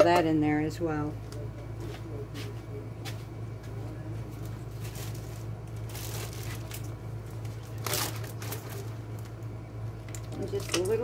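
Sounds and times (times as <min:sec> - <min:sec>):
plastic bag crinkling: 0:04.8 - 0:09.4.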